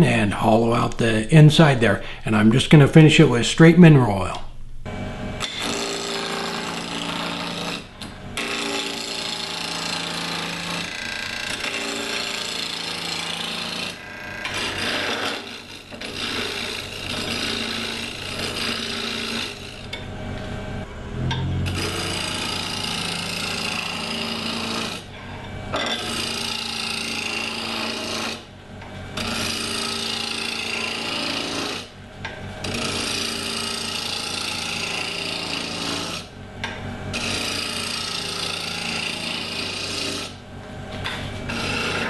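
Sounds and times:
lathe motor hum: 5.2s - 42.0s
gouge scraping wood on lathe: 8.4s - 20.0s, 21.4s - 28.4s, 29.2s - 31.9s, 32.6s - 36.3s, 37.1s - 40.4s, 41.0s - 42.0s.

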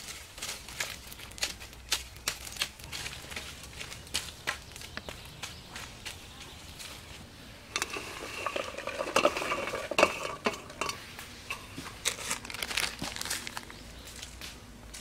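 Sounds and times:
enamel plate scraping and clinking: 7.7s - 12.2s.

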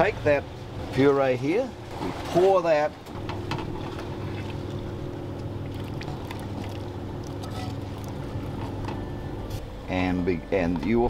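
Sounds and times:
boat engine humming: 2.9s - 11.0s.

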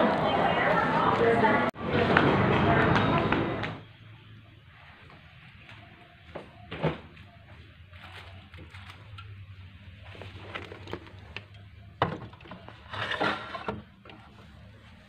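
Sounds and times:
clattering and rustling: 8.0s - 14.4s.

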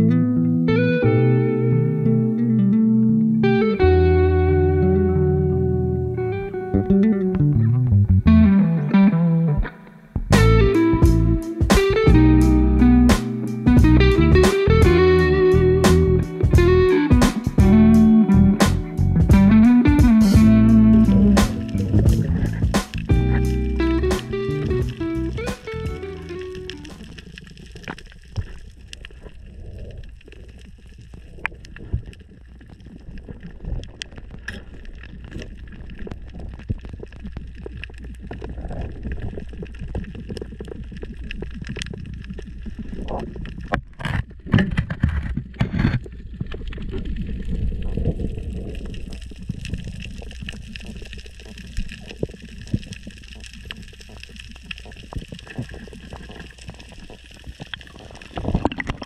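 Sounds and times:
faint crackling clicks: 2.0s - 59.0s
underwater rush of water: 18.8s - 59.0s.

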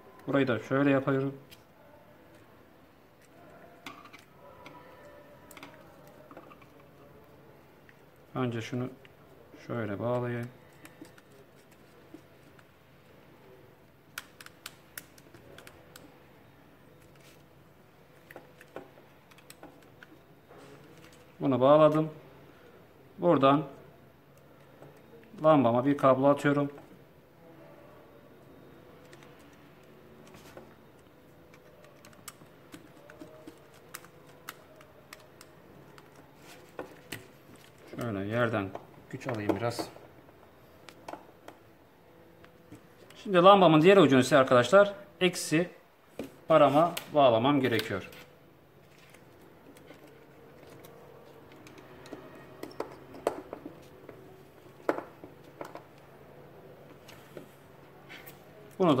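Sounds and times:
wires rustling: 9.0s - 13.2s, 29.0s - 41.7s.

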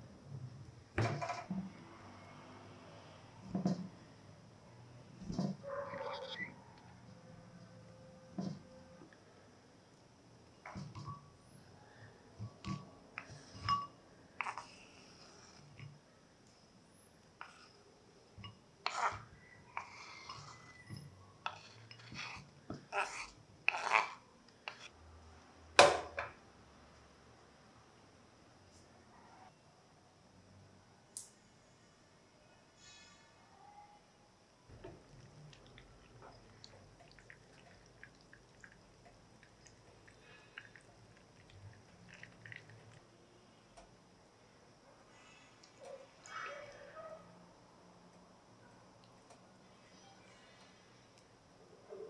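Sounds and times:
butter melting liquid sounds: 34.7s - 43.1s.

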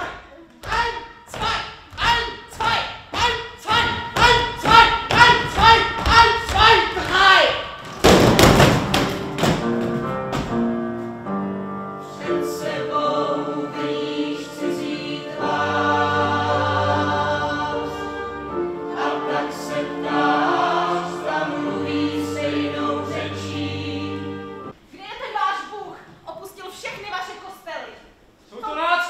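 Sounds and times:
choir singing slow chords: 11.2s - 24.8s.

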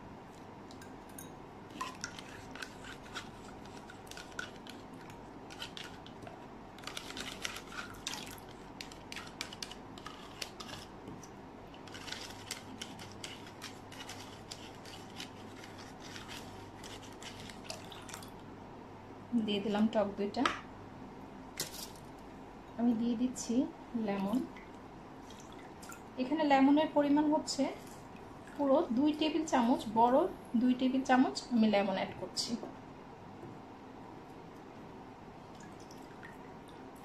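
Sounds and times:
whisk scraping plastic cup: 1.8s - 4.9s, 5.5s - 6.2s, 6.8s - 8.2s, 8.8s - 10.9s, 11.8s - 17.7s
soft drips: 17.6s - 18.5s, 24.2s - 26.4s, 27.8s - 28.8s, 35.4s - 37.0s.

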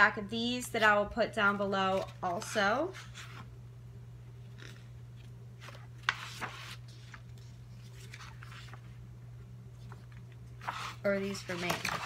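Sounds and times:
low steady hum: 0.0s - 12.0s
paper cards rustling: 1.5s - 3.5s, 4.5s - 9.0s, 9.8s - 12.0s.

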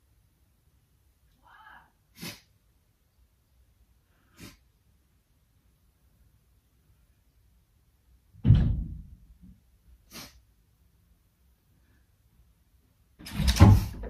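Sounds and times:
sharp sniff: 1.6s - 2.6s, 4.1s - 4.7s, 10.0s - 10.5s.

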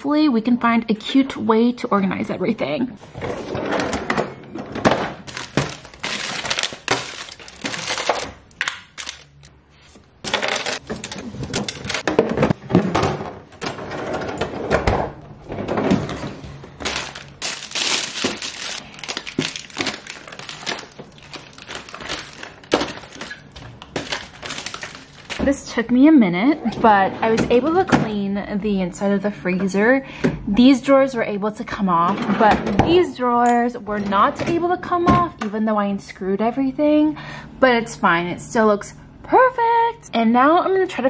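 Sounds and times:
plastic bags crinkling: 5.2s - 9.5s, 10.2s - 12.1s, 16.8s - 25.5s.

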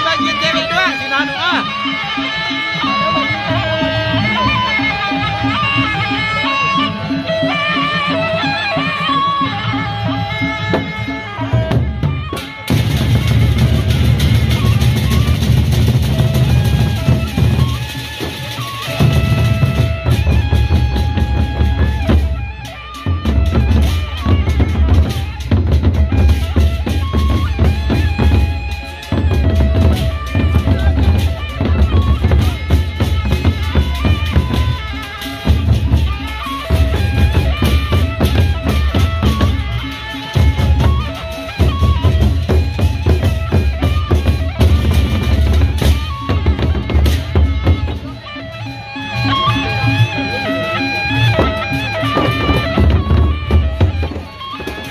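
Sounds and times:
barrel drums beaten fast: 10.2s - 48.2s, 49.1s - 54.9s.

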